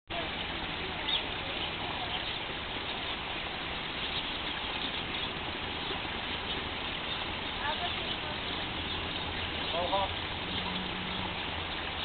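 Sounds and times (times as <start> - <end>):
outdoor background hiss: 0.1 - 12.0
small birds chirping: 0.1 - 12.0.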